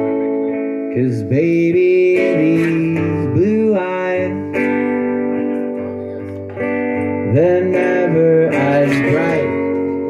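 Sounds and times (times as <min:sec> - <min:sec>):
man singing: 0:00.0 - 0:05.3, 0:07.0 - 0:10.0
acoustic guitar strumming: 0:00.0 - 0:10.0.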